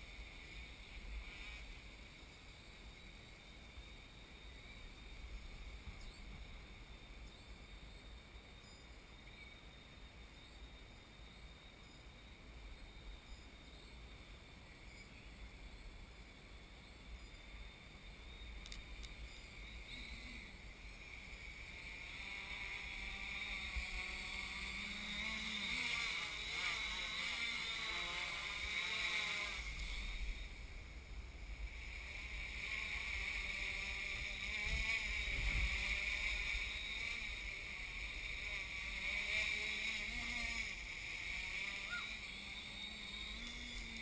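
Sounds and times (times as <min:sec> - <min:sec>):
quadcopter propellers buzzing: 0:00.0 - 0:02.1, 0:18.6 - 0:44.0
wind rumble on microphone: 0:29.6 - 0:38.5.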